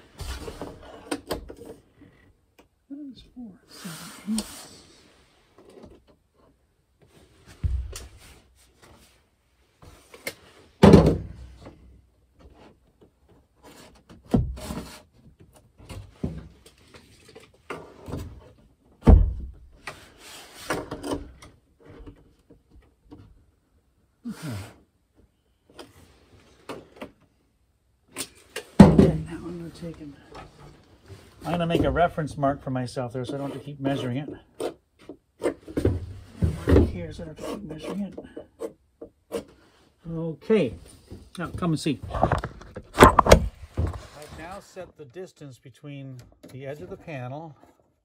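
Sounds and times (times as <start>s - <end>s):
wooden panel knocks and thumps: 10.8s - 11.4s, 28.8s - 29.4s, 42.1s - 44.1s
hands rubbing and scraping wood: 36.5s - 39.6s.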